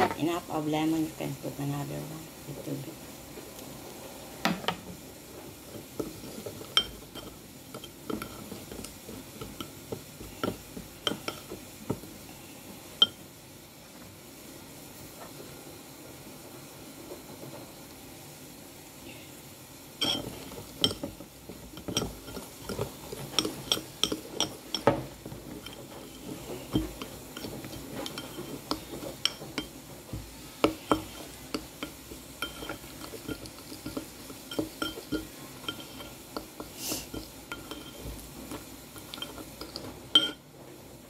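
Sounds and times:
metal spoon clinking on glass bowl: 0:20.0 - 0:21.1, 0:21.8 - 0:25.0, 0:26.7 - 0:29.7, 0:30.6 - 0:36.2, 0:37.1 - 0:38.1, 0:39.0 - 0:40.4.

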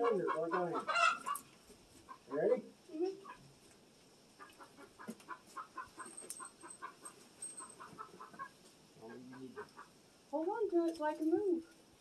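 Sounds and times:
chickens clucking: 0:00.0 - 0:03.6, 0:04.2 - 0:10.0.

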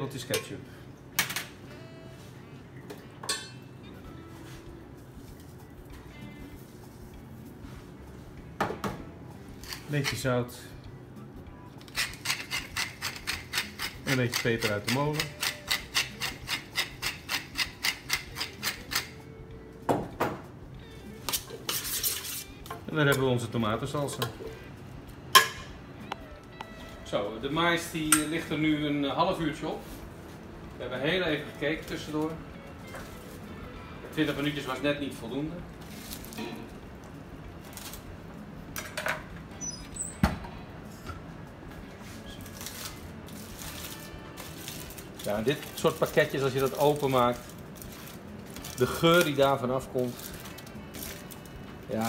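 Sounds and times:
pepper mill grinding: 0:11.8 - 0:19.2
foil crinkling: 0:42.3 - 0:52.0.

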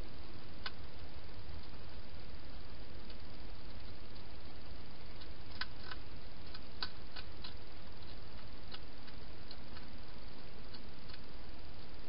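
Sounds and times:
steady hiss: 0:00.0 - 0:12.0
hedgehog crunching dry food: 0:03.0 - 0:11.3.

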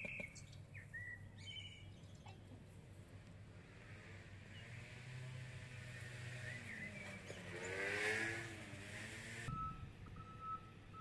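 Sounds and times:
reversing alarm beeping: 0:09.5 - 0:11.0.

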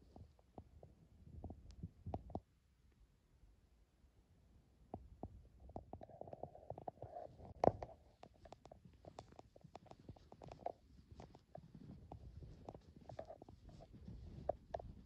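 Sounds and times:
footsteps crunching in snow: 0:09.0 - 0:15.0.

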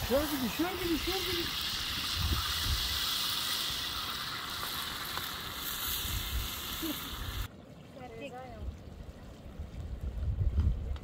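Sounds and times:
vegetables sizzling in a pan: 0:00.0 - 0:07.5.

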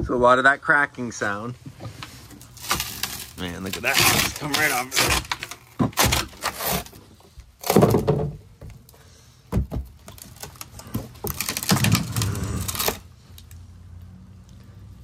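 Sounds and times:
wood and fiberglass knocks: 0:07.6 - 0:08.8, 0:09.5 - 0:10.2.

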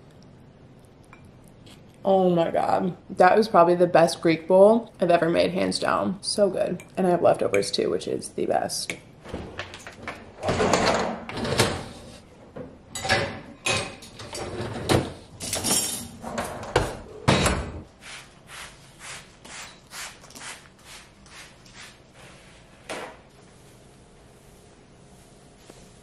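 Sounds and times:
metal racks sliding: 0:09.2 - 0:17.8
dishes clattering: 0:09.4 - 0:17.8.

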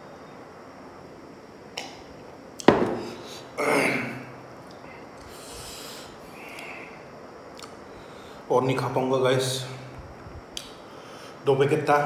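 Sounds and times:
glass mug knocking on wooden table: 0:02.7 - 0:03.0
loud breathy exhale: 0:05.2 - 0:07.1.

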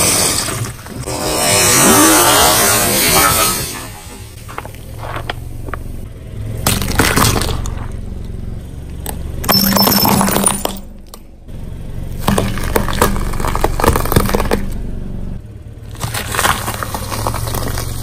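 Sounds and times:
car engine hum: 0:00.0 - 0:18.0
tyre crushing brittle objects: 0:12.2 - 0:14.8, 0:15.9 - 0:18.0.

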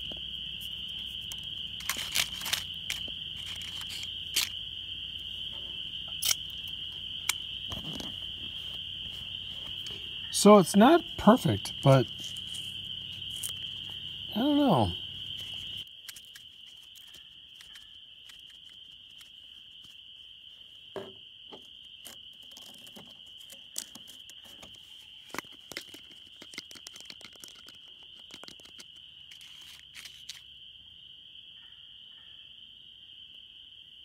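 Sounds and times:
crickets chirping: 0:00.0 - 0:34.0
aluminium foil crinkling: 0:01.2 - 0:04.5, 0:15.4 - 0:19.9, 0:22.4 - 0:30.4.

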